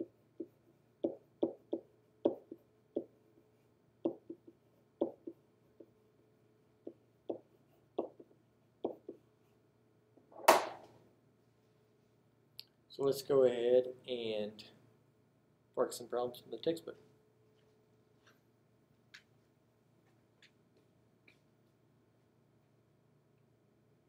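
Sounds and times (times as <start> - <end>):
pen scratching on whiteboard: 0.0 - 3.1, 4.0 - 5.9, 6.8 - 9.2.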